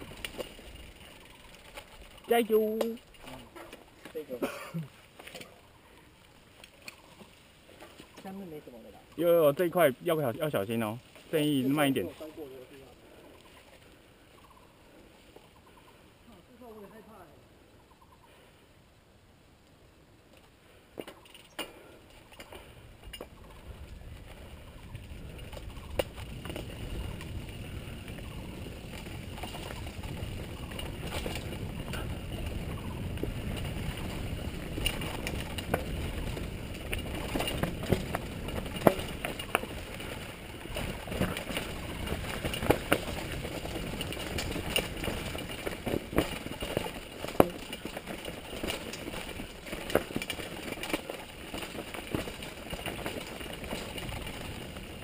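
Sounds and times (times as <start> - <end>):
bike rattling and knocking: 0.0 - 5.5, 21.0 - 55.0
bike tyres over gravel: 0.0 - 14.3, 20.2 - 55.0.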